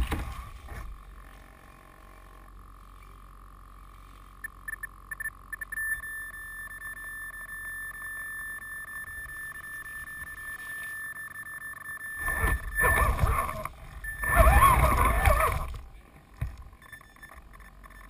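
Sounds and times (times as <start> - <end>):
toy truck driving through grass: 12.1 - 16.0
electric motor whine: 12.1 - 17.8.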